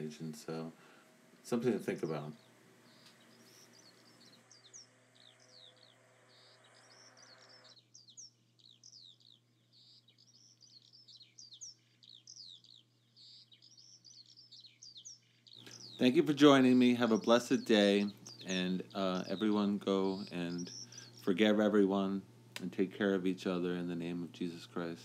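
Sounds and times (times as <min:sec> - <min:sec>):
low steady hum: 0:00.0 - 0:14.5, 0:15.6 - 0:25.0
small birds chirping: 0:00.0 - 0:25.0.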